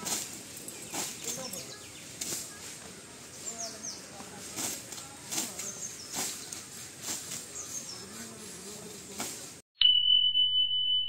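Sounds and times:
birds chirping: 0:00.0 - 0:09.2
high electronic beep tone: 0:09.8 - 0:11.0.

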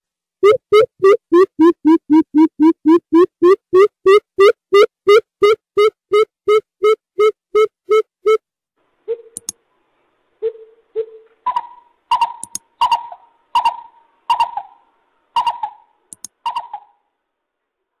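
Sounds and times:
bird hooting: 0:15.4 - 0:17.0.

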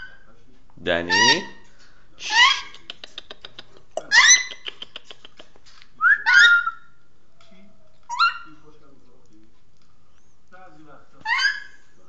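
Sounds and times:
parrot whistling calls: 0:06.0 - 0:07.0, 0:08.1 - 0:08.5.

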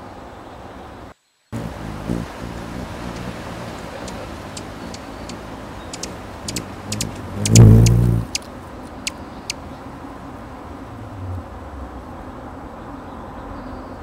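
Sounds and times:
very high ticks: 0:01.6 - 0:09.6
hummingbird wings humming: 0:01.6 - 0:09.7.

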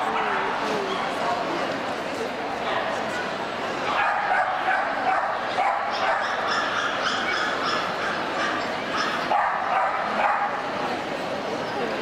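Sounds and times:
dog barking: 0:03.9 - 0:10.6.

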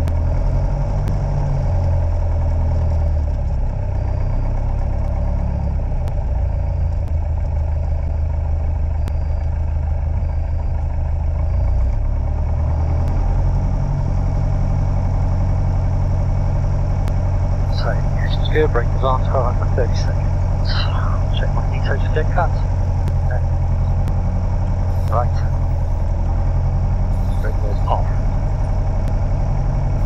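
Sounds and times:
aircraft piston engine droning: 0:12.7 - 0:30.0.

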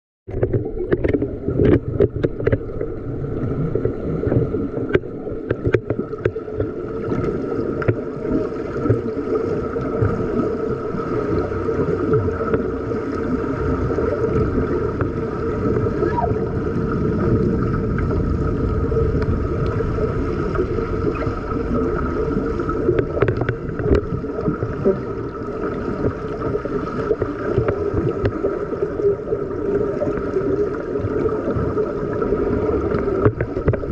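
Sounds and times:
sharp clicks and knocks: 0:00.3 - 0:02.8, 0:04.9 - 0:06.8
underwater rumble and bubbles: 0:00.3 - 0:33.9.

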